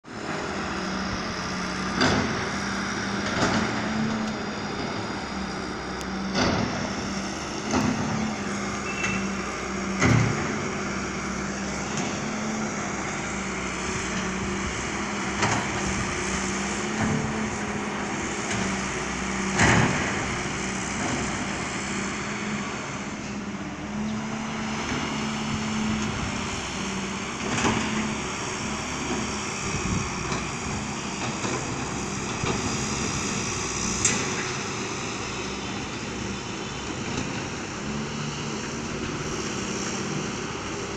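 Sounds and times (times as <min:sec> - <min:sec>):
diesel engine running: 0:00.0 - 0:40.9.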